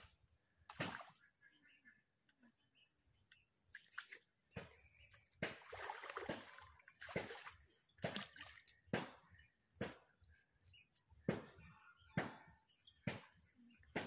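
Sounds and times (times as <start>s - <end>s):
pond water splashing: 0.0s - 1.5s, 3.5s - 10.3s, 12.2s - 14.0s.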